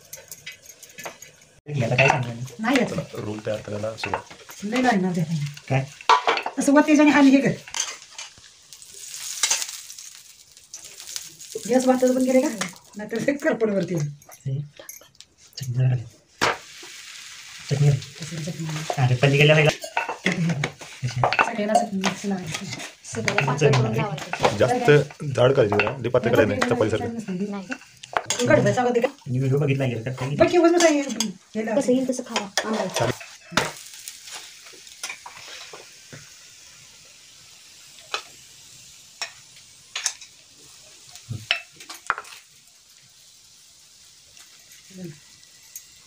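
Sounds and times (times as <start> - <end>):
egg sizzling on hot pan: 0.0 - 46.0.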